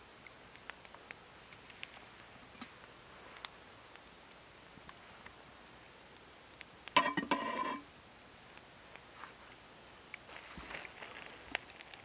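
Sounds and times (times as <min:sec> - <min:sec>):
knife blade scraping pan: 0:07.0 - 0:07.8.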